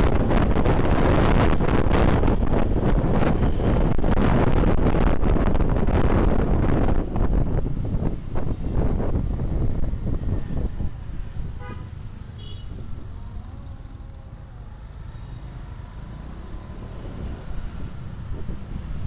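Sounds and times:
wind on microphone: 0.0s - 13.8s, 16.5s - 19.0s
scooter engine rumble: 6.8s - 19.0s
vehicle horn toot: 11.6s - 12.8s.

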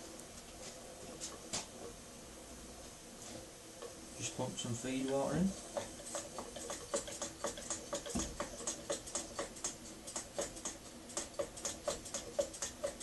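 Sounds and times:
model steam engine ticking: 4.8s - 13.0s.

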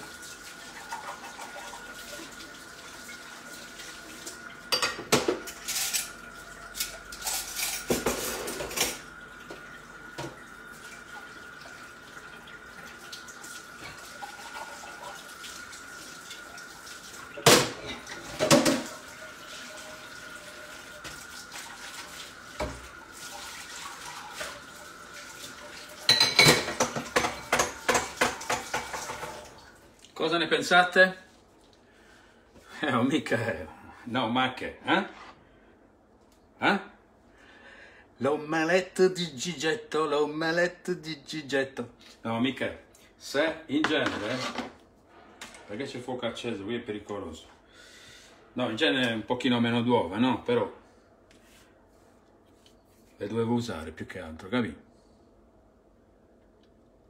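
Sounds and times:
dishes and cutlery clattering: 4.7s - 6.1s, 6.8s - 9.0s, 26.1s - 29.4s.

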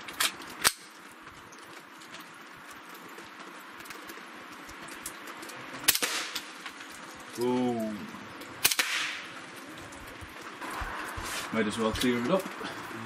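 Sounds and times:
rain hissing: 0.0s - 13.0s
raindrops pattering: 0.0s - 13.0s
rifle shots: 8.6s - 9.2s.

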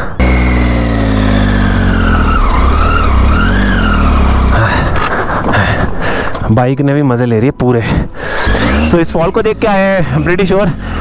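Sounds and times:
motorcycle engine running: 0.0s - 4.9s.

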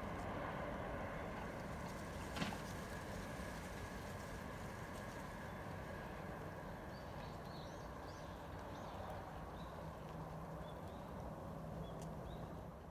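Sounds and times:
faint background rumble: 0.0s - 12.9s
small birds chirping: 6.6s - 12.7s.

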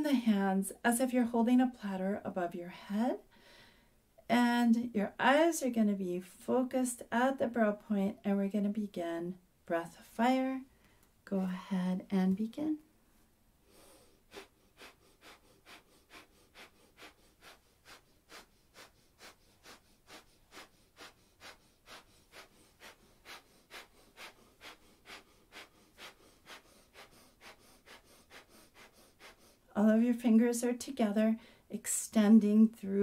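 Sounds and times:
forceful exhalations through nose: 13.6s - 29.7s.

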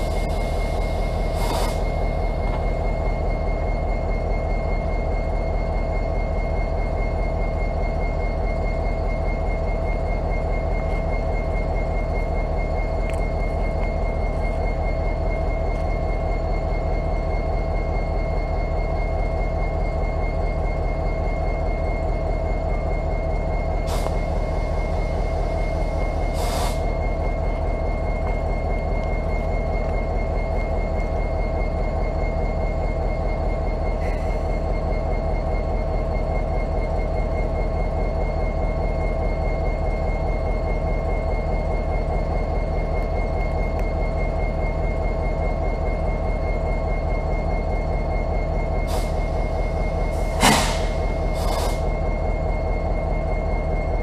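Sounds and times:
diesel locomotive idling: 0.0s - 54.0s
high-pitched whine: 0.0s - 54.0s
short hisses: 50.2s - 51.8s.

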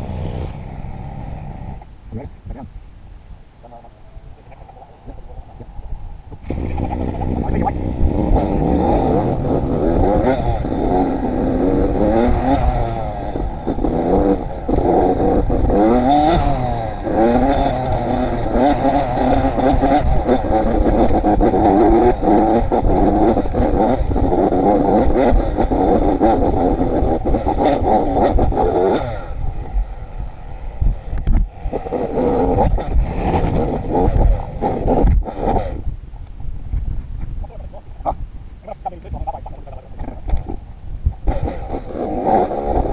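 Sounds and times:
dirt bike engine revving: 6.4s - 30.4s, 31.0s - 35.9s, 41.2s - 42.9s.

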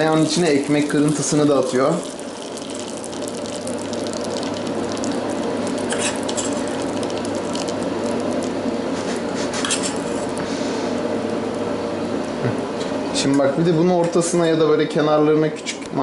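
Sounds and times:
butter sizzling in a pan: 0.0s - 8.8s.

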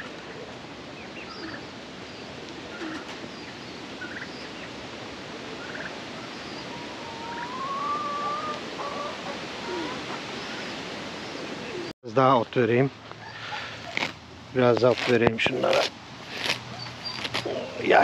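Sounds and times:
chickens and pigeons calling: 0.0s - 11.9s, 13.1s - 14.1s, 16.4s - 18.0s
rain hiss: 0.3s - 11.9s
long rising bird call: 5.4s - 11.9s.

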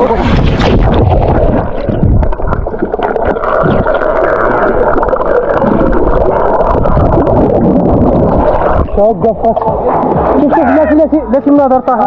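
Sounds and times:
low thumps: 0.0s - 4.1s, 5.6s - 11.2s
water churning and gurgling: 0.0s - 12.0s.

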